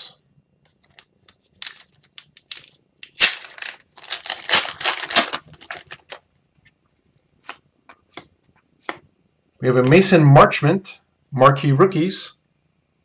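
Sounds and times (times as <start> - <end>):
wrapper tearing and crinkling: 0.8 - 6.2.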